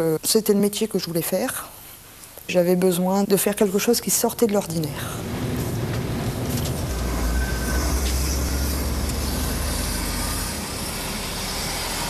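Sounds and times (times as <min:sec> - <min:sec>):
road and wind noise: 0:05.0 - 0:12.0
truck engine rumble: 0:05.0 - 0:12.0.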